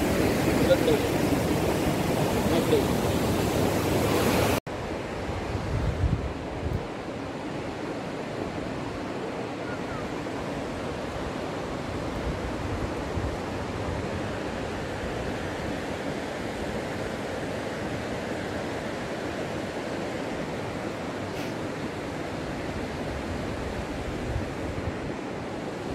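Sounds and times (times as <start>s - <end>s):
waterfall rushing: 0.0s - 4.6s.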